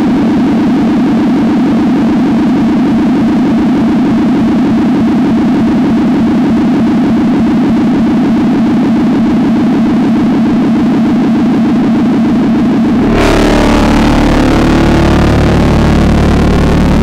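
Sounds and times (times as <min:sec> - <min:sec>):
electronic drone music: 0:12.4 - 0:17.0.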